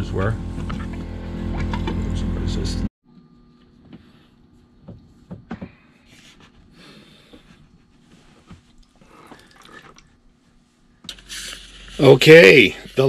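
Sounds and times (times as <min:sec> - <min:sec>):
liquid trickling into a bucket: 0:08.8 - 0:10.1.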